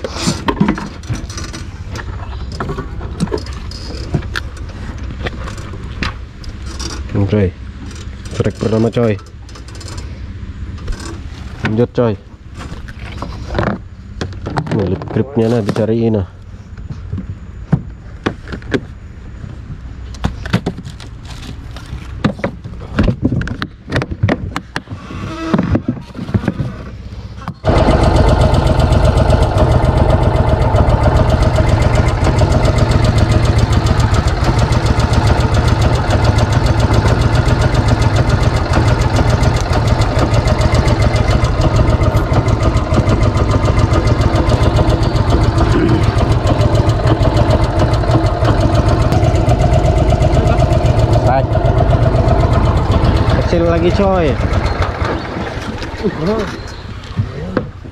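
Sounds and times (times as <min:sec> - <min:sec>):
knocks and clatter: 0:25.5 - 0:57.9
boat engine running: 0:27.2 - 0:57.9.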